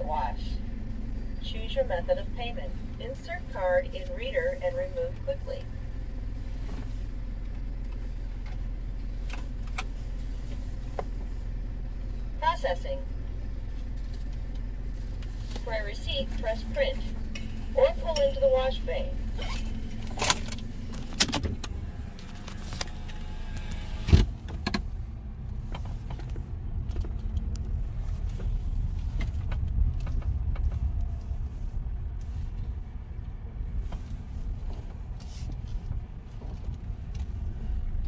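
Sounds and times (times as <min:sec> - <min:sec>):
car engine running low: 0:00.0 - 0:38.0
road rumble: 0:00.0 - 0:38.0
power window whirring shut: 0:19.4 - 0:24.9.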